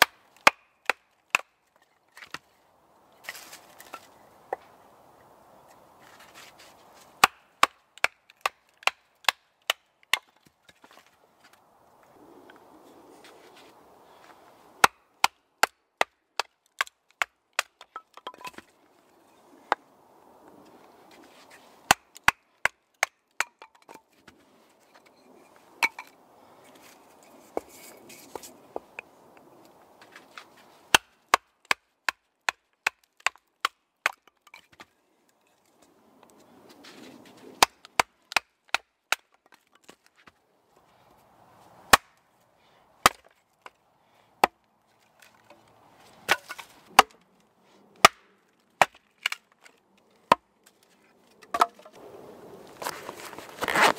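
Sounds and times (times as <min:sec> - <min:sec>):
hatchet chopping wood: 0:00.0 - 0:01.6, 0:07.2 - 0:11.0, 0:14.8 - 0:18.7, 0:21.9 - 0:24.0, 0:30.9 - 0:34.8, 0:37.6 - 0:40.0, 0:41.9 - 0:42.2, 0:43.0 - 0:43.4, 0:44.4 - 0:44.6, 0:46.3 - 0:47.2, 0:48.0 - 0:49.6, 0:50.3 - 0:50.5, 0:51.4 - 0:51.9.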